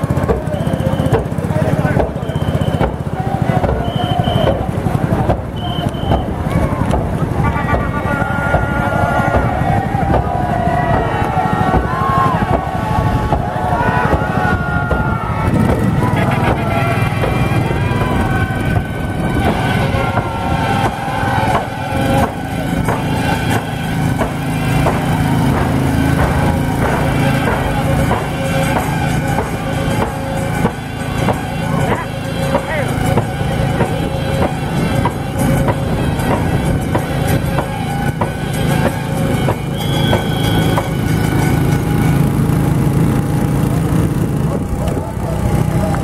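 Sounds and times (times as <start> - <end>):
low engine-like rumble: 0.0 - 46.0
paddles splashing water: 0.0 - 46.0
wavering high calls or whistles: 2.2 - 3.0, 3.8 - 4.7, 5.5 - 6.4, 37.6 - 41.2.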